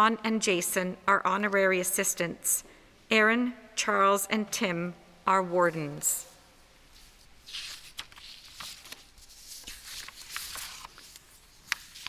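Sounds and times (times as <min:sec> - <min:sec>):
paper rustling: 0:06.9 - 0:12.0
paper crackles: 0:07.0 - 0:12.0.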